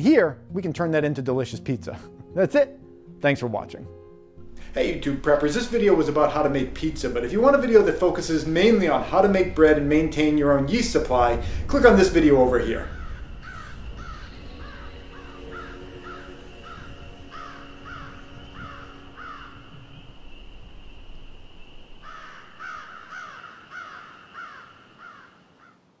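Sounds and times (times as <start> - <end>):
crows cawing: 12.8 - 20.0, 22.0 - 25.9.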